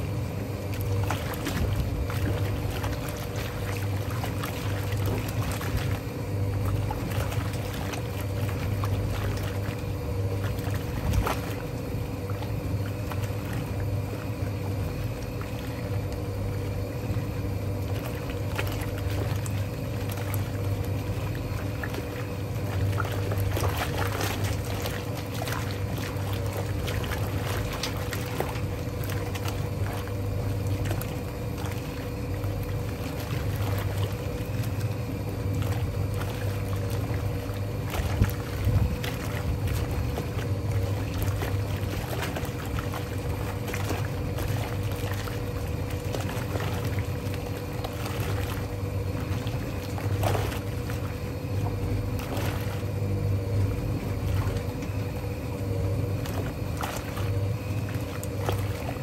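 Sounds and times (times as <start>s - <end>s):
washing machine motor hum: 0.0s - 59.0s
water and laundry sloshing: 0.0s - 59.0s.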